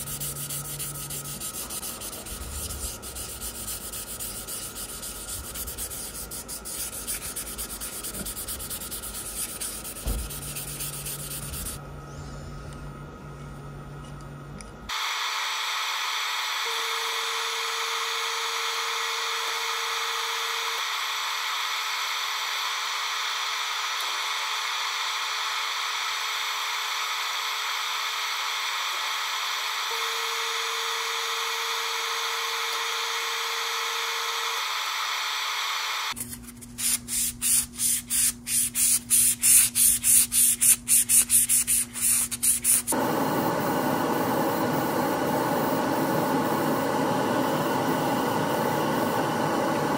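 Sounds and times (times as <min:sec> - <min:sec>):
airbrush hissing: 0:00.0 - 0:11.8, 0:36.8 - 0:49.9
pulsing airbrush hiss: 0:00.0 - 0:11.8, 0:36.8 - 0:49.9.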